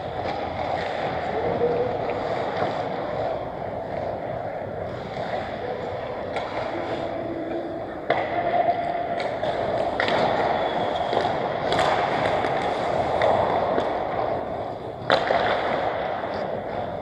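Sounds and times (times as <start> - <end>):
hockey sticks clacking on puck: 0.0 - 17.0
skate blades scraping ice: 9.2 - 17.0.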